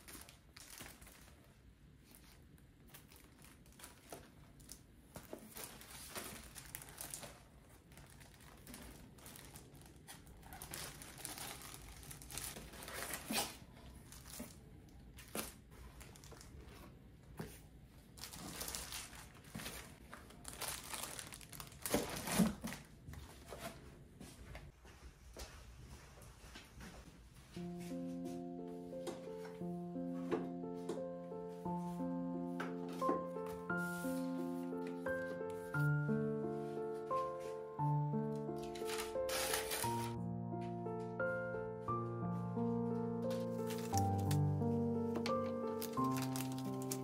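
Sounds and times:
cardboard and paper rustling: 0:00.0 - 0:23.9, 0:32.6 - 0:35.9, 0:38.3 - 0:40.2, 0:43.3 - 0:47.0.

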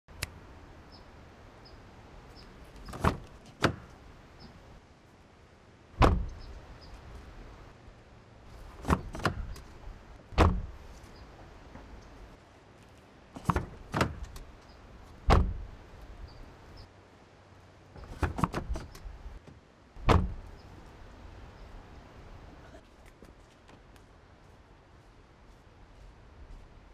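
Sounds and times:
car door latch clicks: 0:02.9 - 0:03.9, 0:06.0 - 0:06.4, 0:08.8 - 0:09.7, 0:10.4 - 0:10.7, 0:13.4 - 0:14.5, 0:15.3 - 0:15.6, 0:18.0 - 0:19.0, 0:20.0 - 0:20.4
car door slamming: 0:02.9 - 0:03.9, 0:06.0 - 0:06.5, 0:08.8 - 0:09.6, 0:10.3 - 0:10.8, 0:13.4 - 0:14.4, 0:15.2 - 0:15.7, 0:18.0 - 0:19.0, 0:20.0 - 0:20.5.

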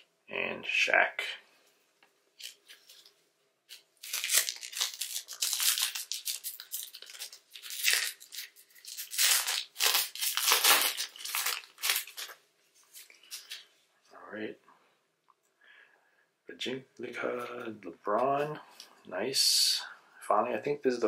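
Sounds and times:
foil wrapper crinkling and tearing: 0:03.7 - 0:13.6.

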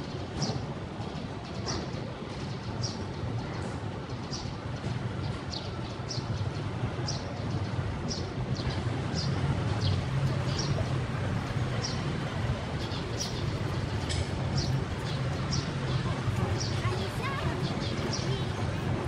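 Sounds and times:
steady low rumble: 0:06.8 - 0:19.0.

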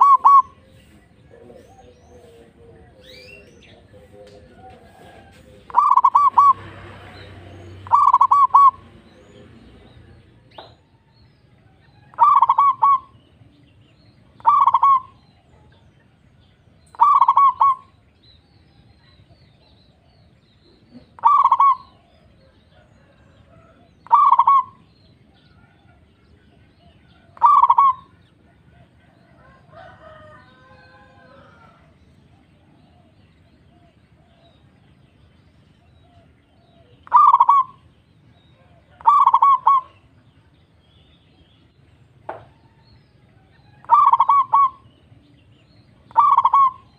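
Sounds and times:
dove cooing: 0:00.0 - 0:10.8, 0:12.0 - 0:13.2, 0:14.4 - 0:15.8, 0:16.9 - 0:18.1, 0:20.7 - 0:24.9, 0:26.8 - 0:34.7, 0:36.0 - 0:37.9, 0:38.5 - 0:40.2, 0:43.6 - 0:45.0, 0:46.0 - 0:46.9.

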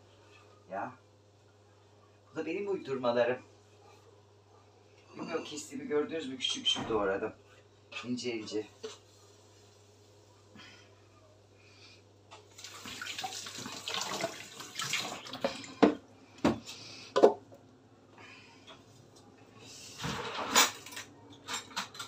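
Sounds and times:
kitchen tap running: 0:12.5 - 0:16.0
kitchenware clanking in sink: 0:20.0 - 0:22.0.

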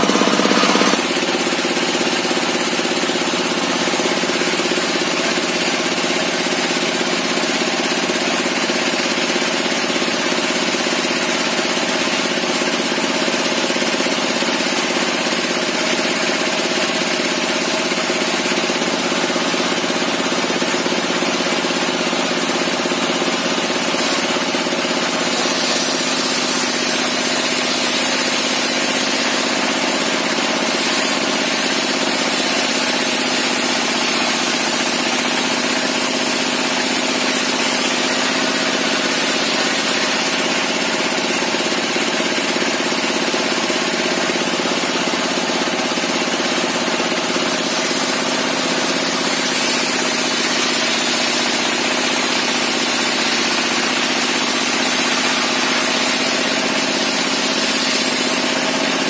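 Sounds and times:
table saw blade spinning: 0:00.0 - 0:02.0, 0:23.3 - 0:36.4, 0:47.1 - 0:59.0
engine running steadily: 0:00.0 - 0:59.0.

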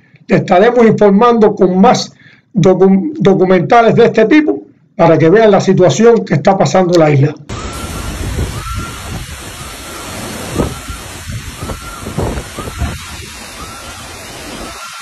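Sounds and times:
heavy rain: 0:07.5 - 0:15.0
hurricane wind: 0:07.5 - 0:15.0
wind buffeting microphone: 0:07.5 - 0:15.0.

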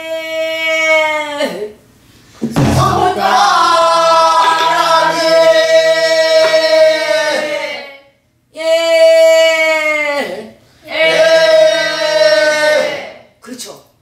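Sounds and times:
low drum thump: 0:02.4 - 0:03.5
stick knocks: 0:06.4 - 0:06.7.

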